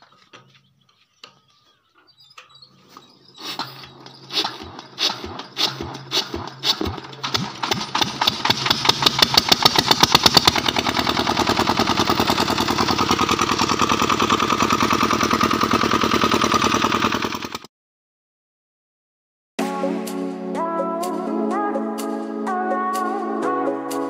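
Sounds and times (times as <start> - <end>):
engine cranking knocks: 0.0 - 17.7
diesel generator engine running: 1.5 - 17.7.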